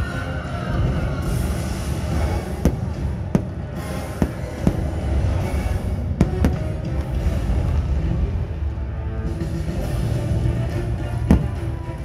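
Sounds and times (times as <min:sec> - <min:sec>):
fireworks show music: 0:00.0 - 0:12.0
steady rumble: 0:00.0 - 0:12.0
fireworks bangs: 0:00.8 - 0:05.4, 0:06.0 - 0:08.0.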